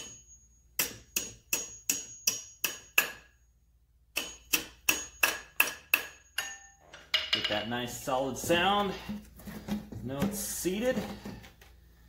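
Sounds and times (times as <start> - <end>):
hammer tapping metal pins: 0.0 - 3.4, 4.1 - 7.7.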